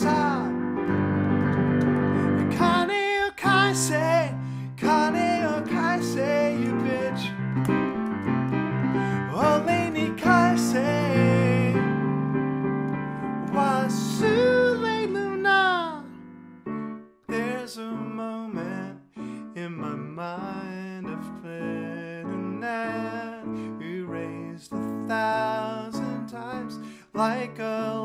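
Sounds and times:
man singing: 0:00.0 - 0:00.7, 0:02.3 - 0:07.4, 0:09.0 - 0:12.0, 0:13.4 - 0:16.2, 0:17.3 - 0:28.0
digital piano chords: 0:00.0 - 0:28.0.

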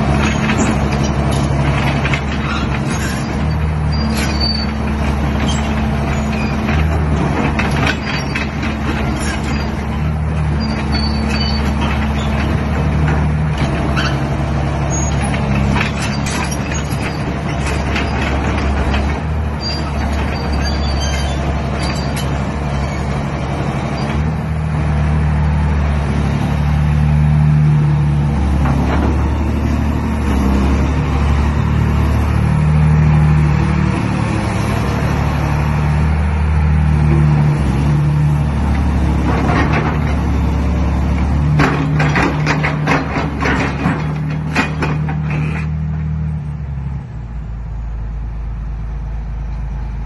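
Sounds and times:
excavator diesel engine under load: 0:00.0 - 0:50.0.

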